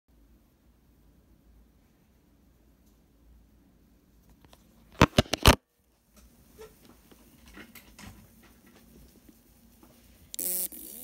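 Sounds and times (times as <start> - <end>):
faint ticks and rustles: 5.9 - 10.4.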